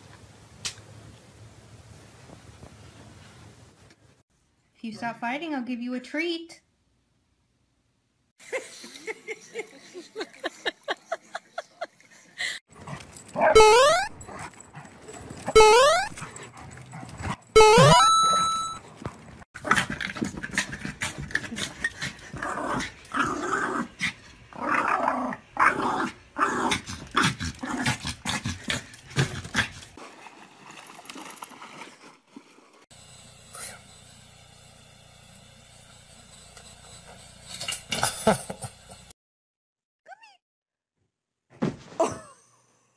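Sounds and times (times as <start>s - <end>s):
small dog growling and yapping: 19.6s - 29.9s.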